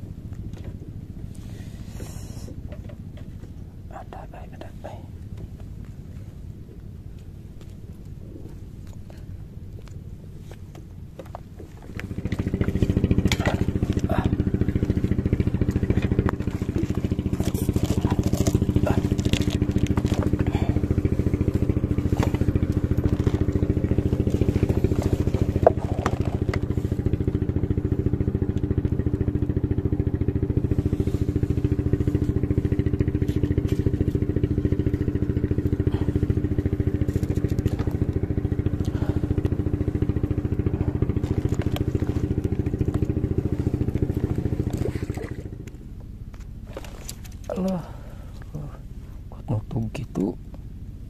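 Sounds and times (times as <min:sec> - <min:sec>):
small engine running: 0:00.0 - 0:51.0.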